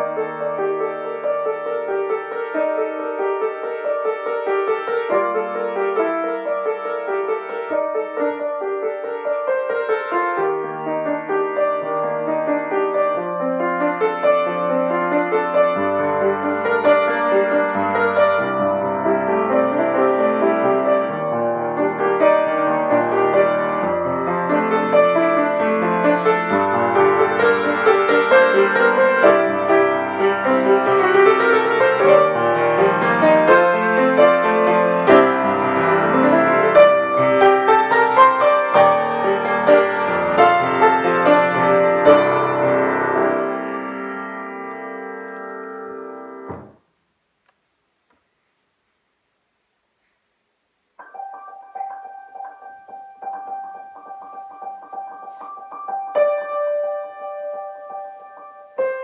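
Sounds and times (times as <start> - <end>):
piano improvisation: 0.0 - 47.0, 51.0 - 59.0.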